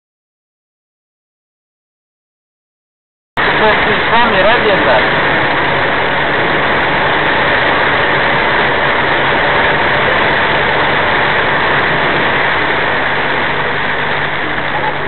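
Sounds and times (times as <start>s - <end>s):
truck engine drone: 3.4s - 15.0s
tyres hissing on wet road: 3.4s - 15.0s.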